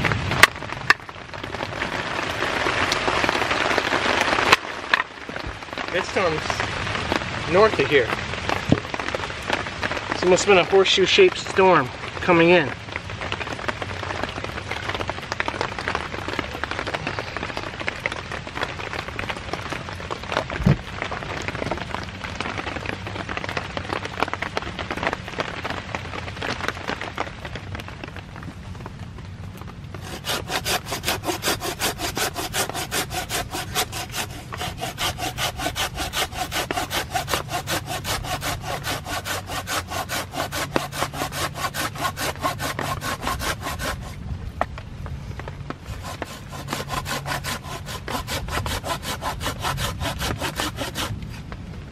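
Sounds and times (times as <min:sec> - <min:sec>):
steady rain falling: 0:00.0 - 0:46.3, 0:51.1 - 0:51.9
hand saw cutting through log: 0:30.0 - 0:44.2, 0:45.8 - 0:51.2.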